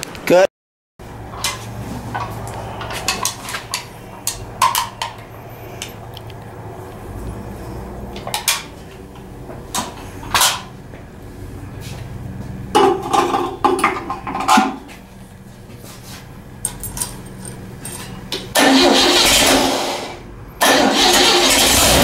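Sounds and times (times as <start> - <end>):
steady low hum: 1.0 - 18.6
metallic clinks and knocks: 16.6 - 18.3.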